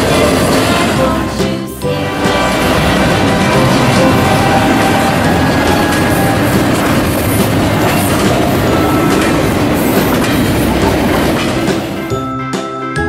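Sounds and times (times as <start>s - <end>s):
train wheels rumbling on rails: 0.0s - 12.2s.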